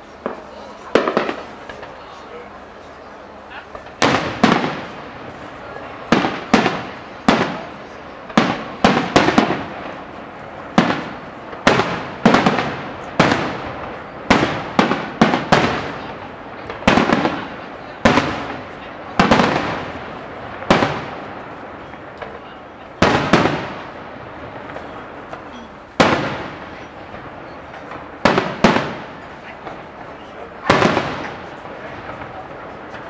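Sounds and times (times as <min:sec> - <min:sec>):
fireworks bursting with echo: 0:00.0 - 0:33.0.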